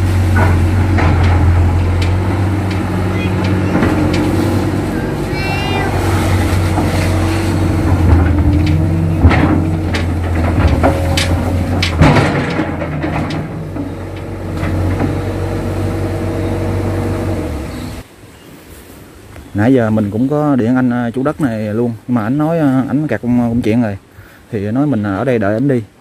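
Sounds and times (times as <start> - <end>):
bucket clanking and scraping: 0.0 - 18.0
excavator diesel engine running: 0.0 - 18.0.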